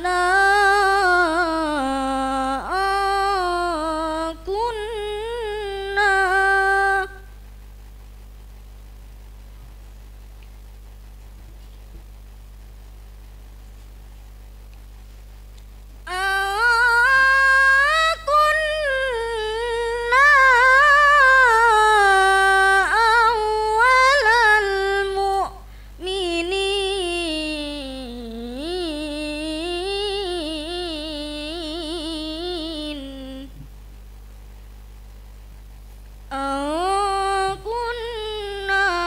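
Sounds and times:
girl reciting melodically: 0.0s - 7.4s, 16.1s - 33.6s, 36.3s - 39.0s
low electrical hum: 0.0s - 39.0s.

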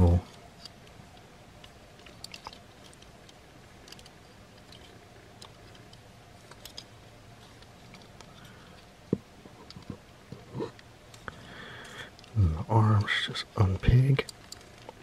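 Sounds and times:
faint steady hum: 0.0s - 15.0s
plastic toy parts clicking: 0.6s - 6.9s.

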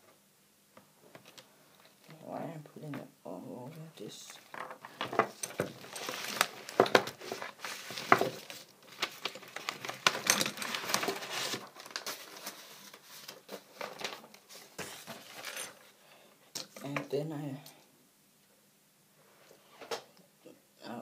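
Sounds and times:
paper rustling: 4.3s - 15.9s.

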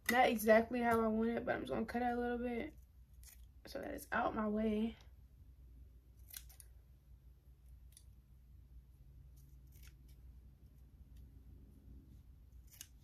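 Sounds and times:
scissors snipping hair: 6.2s - 6.7s.

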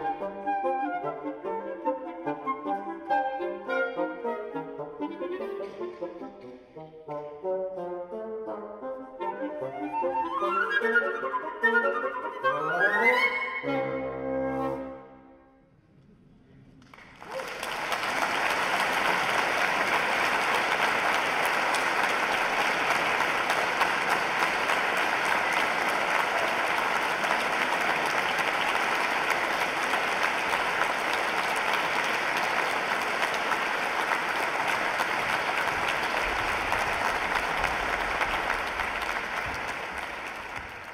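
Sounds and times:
audience applauding: 16.8s - 40.9s.

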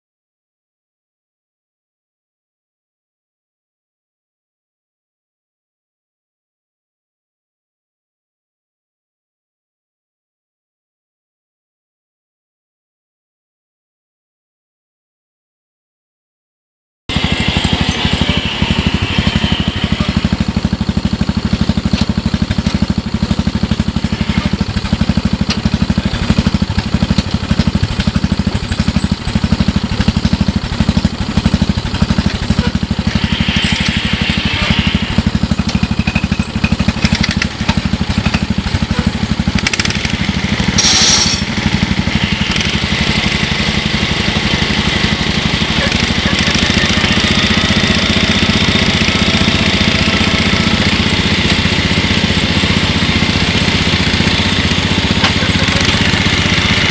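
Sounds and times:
small mower engine idling: 17.1s - 56.9s.

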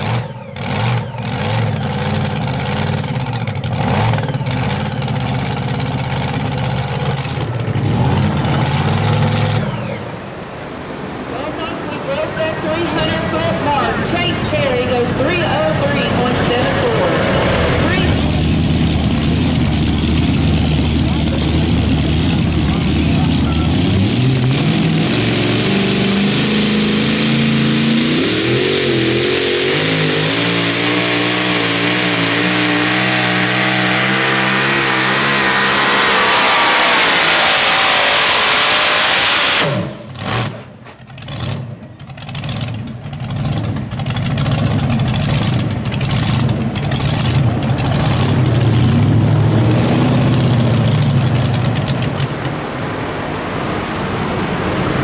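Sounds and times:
engine at full throttle: 0.0s - 11.3s, 12.4s - 55.0s.

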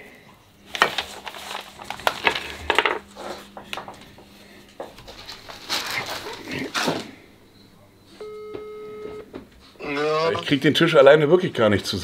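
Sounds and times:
paper sheets rustling: 0.7s - 7.2s
wooden parts knocking and clattering: 0.8s - 7.1s.

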